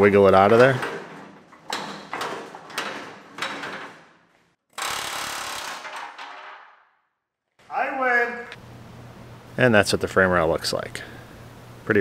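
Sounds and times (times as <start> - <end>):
metal clanks and knocks: 0.1 - 4.2.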